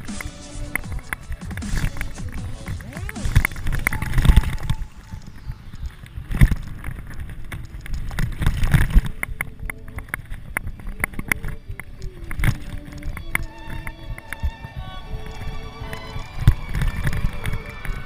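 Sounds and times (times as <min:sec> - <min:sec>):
mountain bike rattling: 0:00.9 - 0:14.0.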